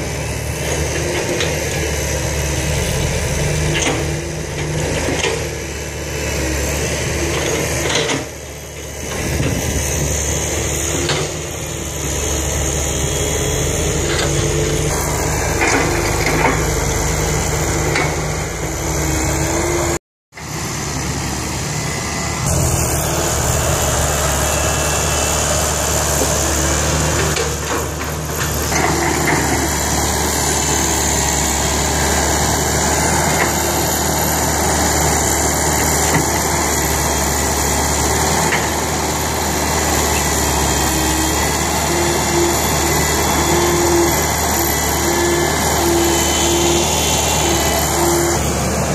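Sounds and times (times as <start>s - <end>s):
dump truck diesel engine: 0.0s - 48.9s
excavator engine digging: 0.0s - 48.9s.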